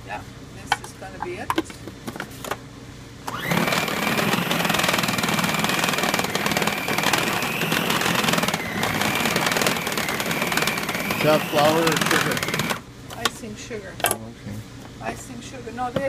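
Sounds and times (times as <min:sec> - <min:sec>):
food processor motor whining: 0:03.3 - 0:12.9.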